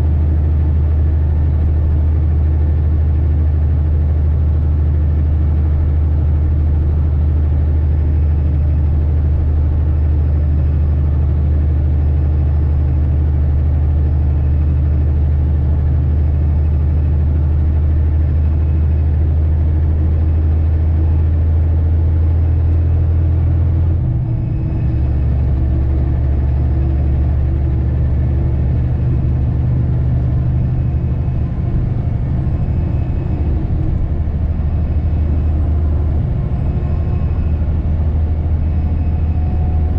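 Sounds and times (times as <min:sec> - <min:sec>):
truck diesel engine drone: 0:00.0 - 0:39.9.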